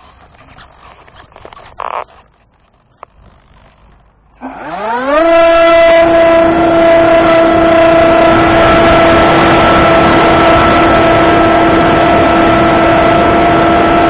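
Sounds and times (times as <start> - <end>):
handling rustles and clicks: 0.0 - 4.3
electric motor and propeller whine: 3.2 - 14.0.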